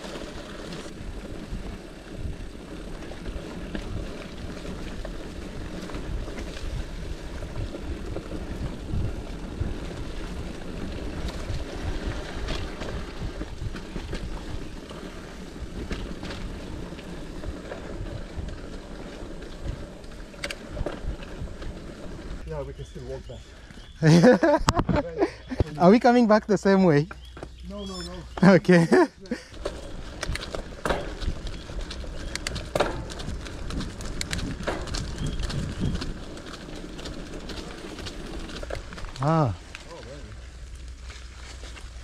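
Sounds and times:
bike clicks and rattles: 0:00.0 - 0:22.4, 0:27.0 - 0:42.0
tyres rumbling on dirt trail: 0:00.0 - 0:42.0
wind buffeting microphone: 0:00.8 - 0:26.2, 0:27.5 - 0:39.5.

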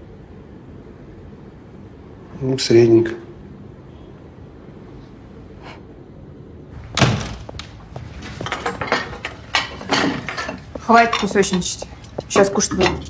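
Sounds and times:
door shutting with heavy thud: 0:06.8 - 0:09.0.

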